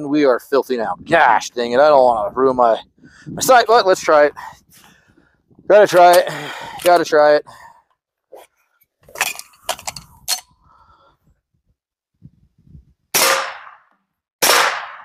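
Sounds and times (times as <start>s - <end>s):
light handling clicks and knocks: 9.1s - 10.4s
pistol shots: 13.2s - 13.8s, 14.4s - 15.0s.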